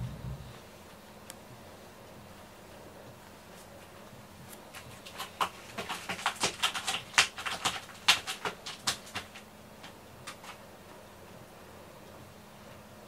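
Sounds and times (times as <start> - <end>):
scratching on cardboard: 3.5 - 10.6.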